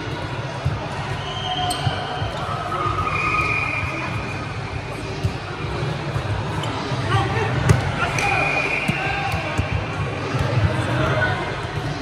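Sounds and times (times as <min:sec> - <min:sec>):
shoes squeaking on court floor: 0:01.4 - 0:04.5.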